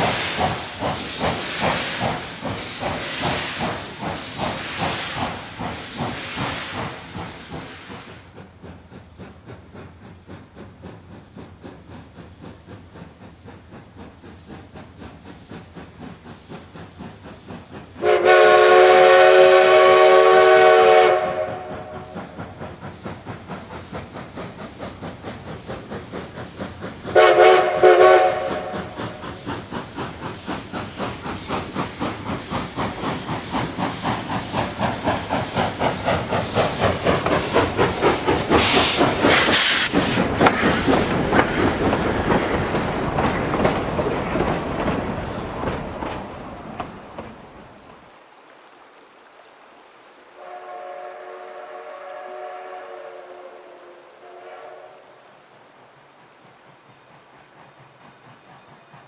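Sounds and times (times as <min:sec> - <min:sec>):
steam exhaust chuffing: 0:00.0 - 0:48.0
steam hissing: 0:00.0 - 0:48.8, 0:49.8 - 0:59.0
steam locomotive whistle: 0:18.0 - 0:22.4, 0:27.1 - 0:29.2, 0:50.4 - 0:55.3.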